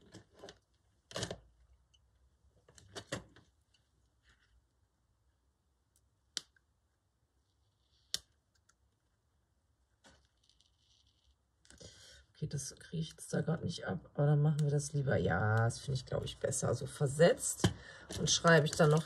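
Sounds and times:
paper stickers rustling: 18.1 - 19.0.

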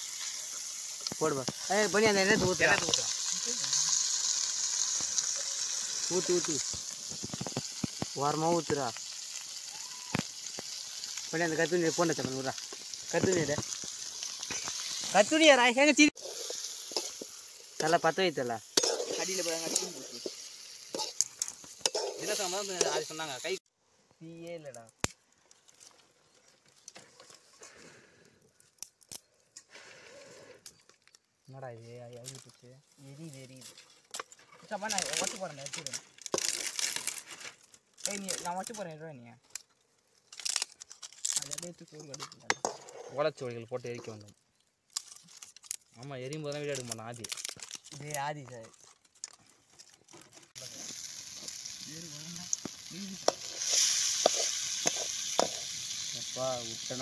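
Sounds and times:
fish deep-frying in oil: 0.0 - 23.6, 34.7 - 37.2, 38.0 - 39.0, 50.5 - 57.0
metal ladle scraping a pan: 16.2 - 17.4, 18.7 - 23.1.

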